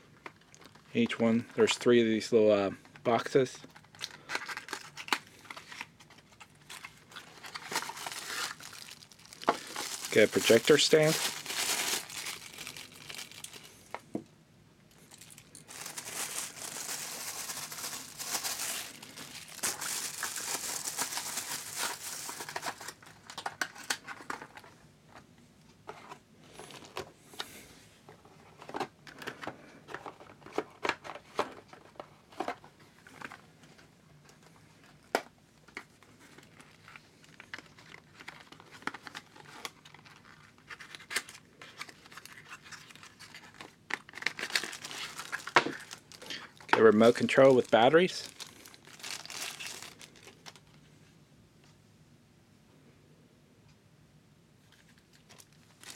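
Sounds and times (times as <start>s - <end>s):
plastic wrapping crinkling: 0.1s - 1.0s, 3.1s - 14.2s, 14.9s - 24.8s, 35.6s - 50.8s, 54.7s - 55.9s
cardboard packaging rustling: 3.1s - 14.2s, 14.9s - 50.8s, 54.7s - 55.9s.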